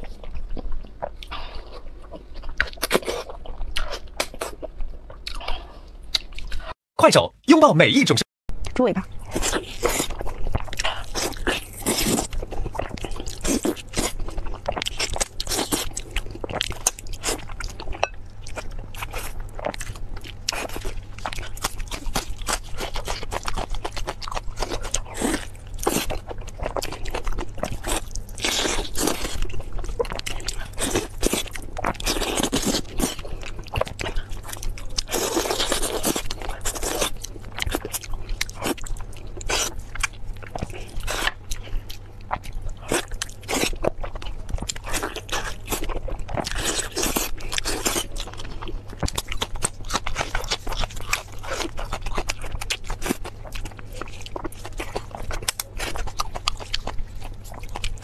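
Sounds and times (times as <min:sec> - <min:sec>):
close-miked chewing and biting: 0:00.0 - 0:06.8, 0:09.1 - 0:58.0.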